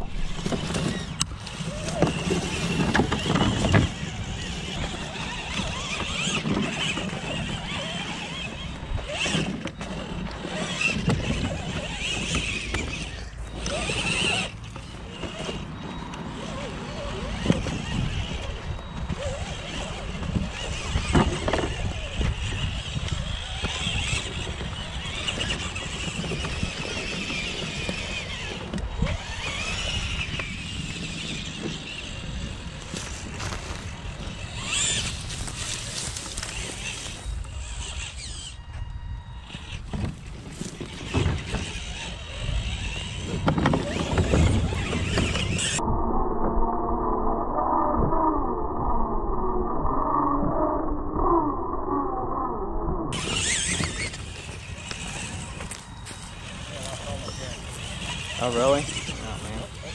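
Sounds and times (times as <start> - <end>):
electric motor whining: 0.0 - 45.9, 50.3 - 59.9
wind rumbling on microphone: 0.0 - 59.9.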